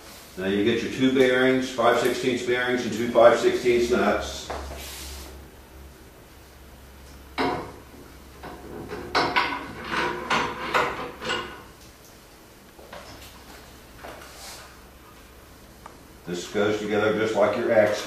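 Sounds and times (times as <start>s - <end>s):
metal clanks and rattles: 8.4s - 11.7s.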